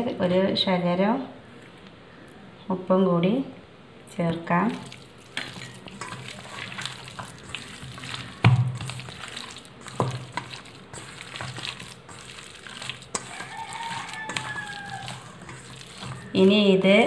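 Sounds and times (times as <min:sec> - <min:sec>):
wet squelching by hand: 0:04.5 - 0:16.4.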